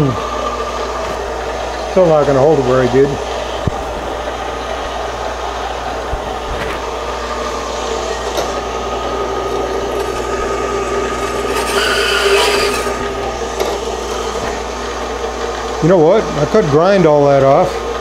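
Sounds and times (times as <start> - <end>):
bandsaw cutting metal: 6.8 - 15.4.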